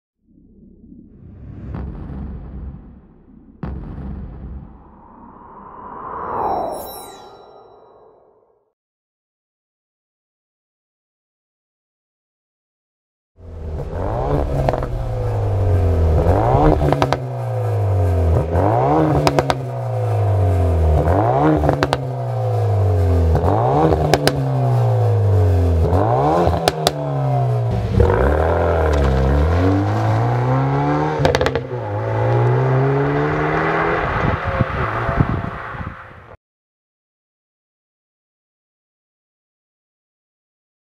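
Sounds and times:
exhaust crackles and pops: 0:01.7 - 0:04.9, 0:13.8 - 0:19.8, 0:23.3 - 0:24.6, 0:25.9 - 0:27.1, 0:27.7 - 0:29.9
car engine revving: 0:13.4 - 0:36.0.

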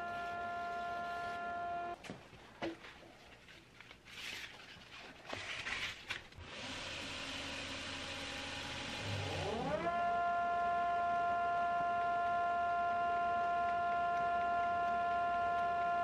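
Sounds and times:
belt grinder motor whine: 0:00.0 - 0:02.0, 0:06.4 - 0:16.0.

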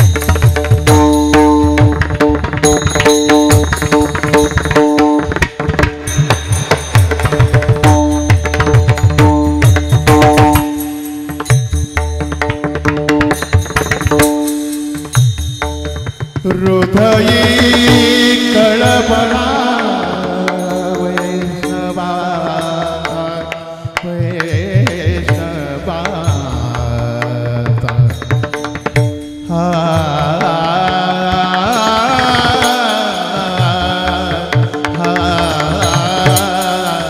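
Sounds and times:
hand drum: 0:00.0 - 0:37.0
brass cymbals clashing: 0:02.8 - 0:11.9
men singing devotional melody: 0:16.4 - 0:28.4, 0:29.0 - 0:37.0.

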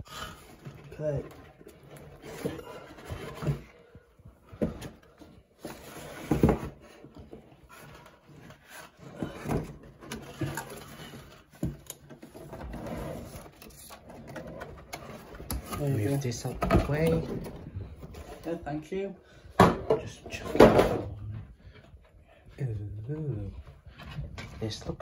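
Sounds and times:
cardboard box rustling and scraping: 0:00.8 - 0:18.6.

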